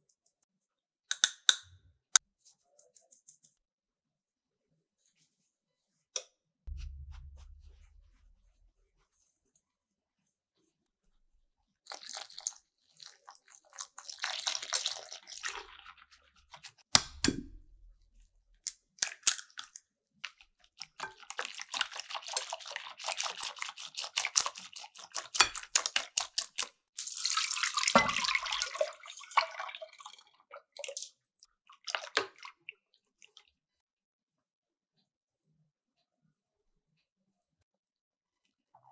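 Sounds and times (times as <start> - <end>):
sharp knock: 6.7 - 8.8
thud: 6.7 - 9.0
utensils handled in a bowl: 20.8 - 28.7.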